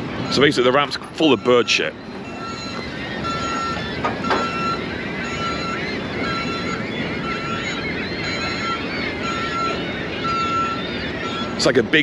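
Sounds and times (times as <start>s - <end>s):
birds chattering: 0.0s - 12.0s
reversing alarm beeping: 0.0s - 12.0s
traffic roar on bridge: 0.0s - 12.0s.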